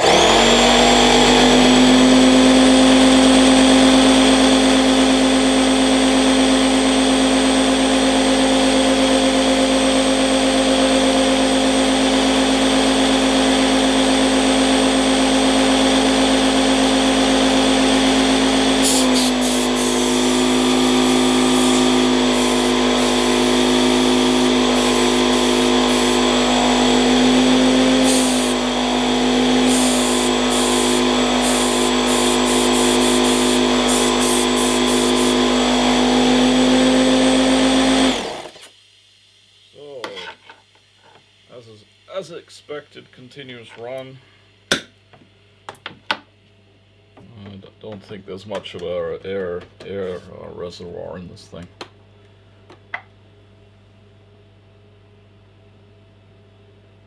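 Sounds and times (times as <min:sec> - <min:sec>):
air compressor humming: 0:00.0 - 0:38.8
bursts of air hiss: 0:18.8 - 0:26.2.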